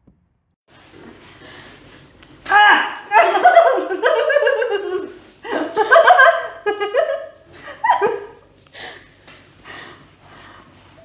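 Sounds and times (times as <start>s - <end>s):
giggling laughter: 3.1s - 8.4s.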